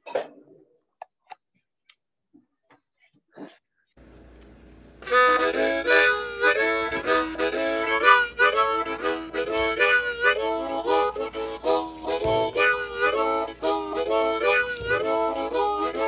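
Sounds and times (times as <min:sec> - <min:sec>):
harmonica playing chords: 0:05.0 - 0:16.0.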